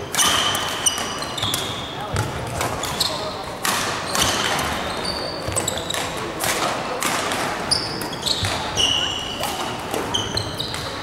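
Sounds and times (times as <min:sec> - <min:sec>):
racket hitting shuttlecock: 0:00.1 - 0:03.0, 0:03.6 - 0:04.8, 0:05.5 - 0:08.8, 0:09.4 - 0:11.0
sneaker squeaks on wooden floor: 0:00.1 - 0:03.4, 0:04.1 - 0:06.2, 0:07.7 - 0:11.0.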